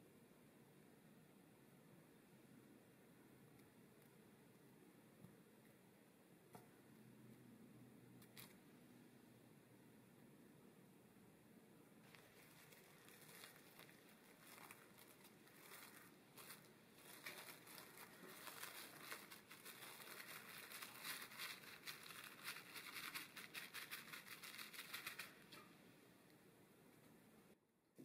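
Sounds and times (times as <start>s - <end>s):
cling film crinkling: 12.0s - 25.7s.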